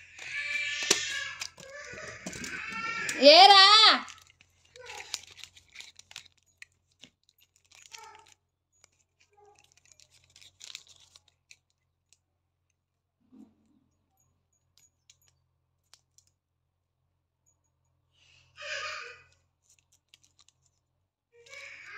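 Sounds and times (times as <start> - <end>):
small metal clicks: 0.0 - 3.2, 4.1 - 12.2, 14.6 - 16.4, 19.6 - 20.8
paper and plastic crinkling: 0.0 - 11.8, 19.6 - 20.8.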